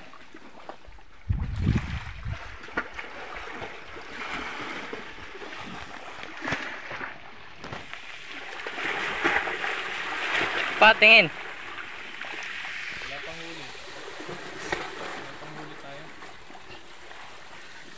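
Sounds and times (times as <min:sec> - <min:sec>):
wind buffeting microphone: 0:01.1 - 0:02.8
sea water washing on rocks: 0:01.5 - 0:17.9.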